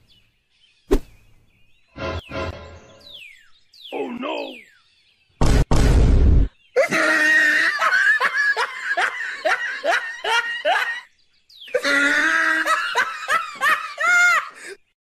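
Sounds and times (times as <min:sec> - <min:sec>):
cartoon laughter: 0:06.8 - 0:11.1, 0:11.7 - 0:14.7.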